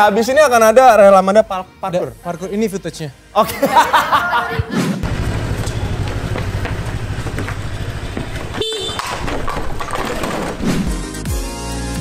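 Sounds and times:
vehicle engine rumble: 5.0 - 10.6
car horn beep: 8.4 - 9.3.

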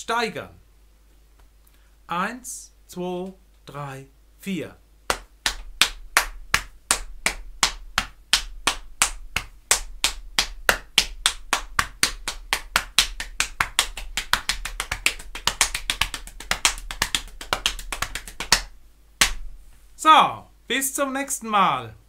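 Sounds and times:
hands slapping on body: 5.1 - 19.5.

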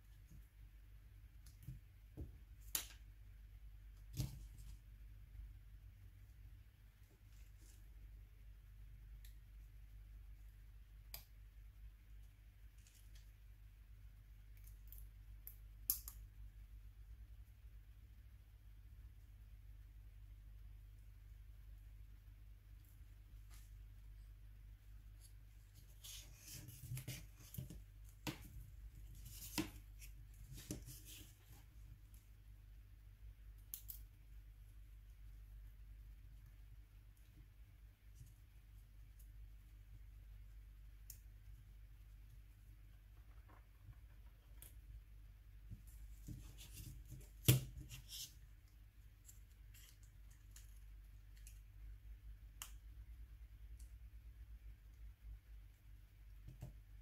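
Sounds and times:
small sharp clicks: 14.5 - 16.3, 33.6 - 34.1.

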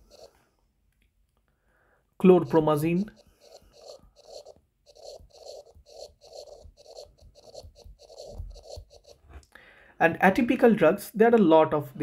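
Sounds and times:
stylus scratching on tablet screen: 0.0 - 0.5, 2.3 - 9.4.

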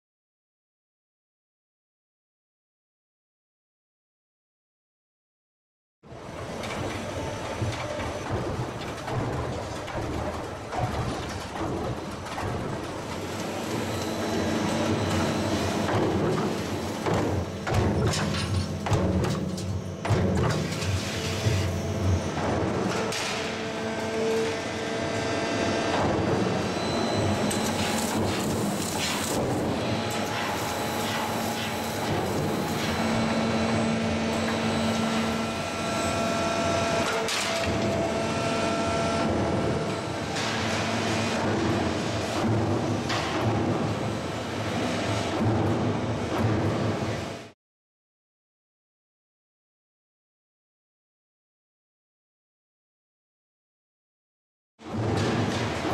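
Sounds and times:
rollforming machine running: 6.2 - 47.5.

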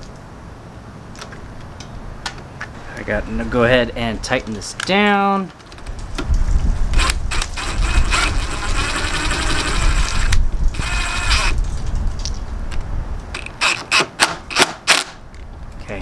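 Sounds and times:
sharp clicks: 4.4 - 15.5
power drill ratcheting clicks: 6.9 - 11.6, 13.3 - 15.1.

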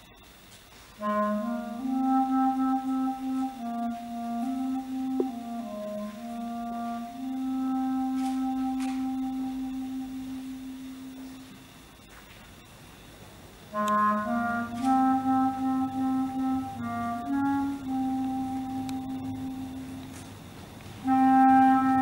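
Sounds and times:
solo clarinet: 0.9 - 11.6, 13.7 - 22.0.

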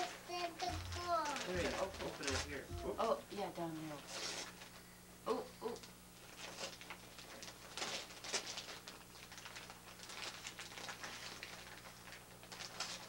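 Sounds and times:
wrapping paper rustling and tearing: 0.0 - 3.2, 3.8 - 4.8, 6.2 - 13.0
faint steady hum: 0.0 - 13.0.

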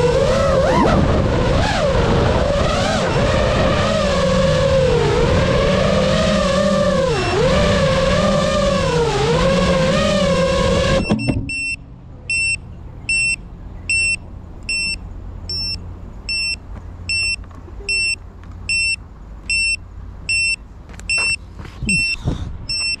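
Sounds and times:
drone motors whining: 0.0 - 19.7
drone buzzer beeping: 7.1 - 7.5, 11.0 - 23.0.

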